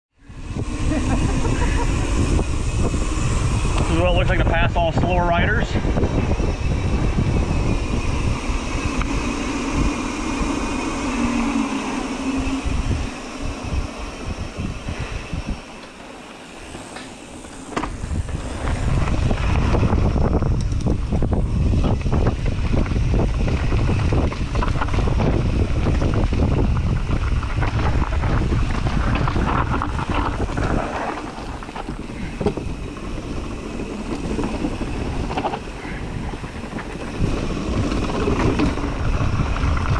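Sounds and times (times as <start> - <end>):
wind rushing over microphone: 0.1 - 39.9
bike clattering over bumps: 16.7 - 39.9.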